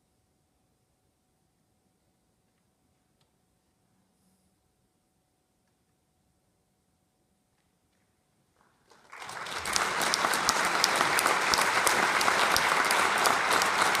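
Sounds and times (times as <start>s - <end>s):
audience applause: 8.8s - 14.0s.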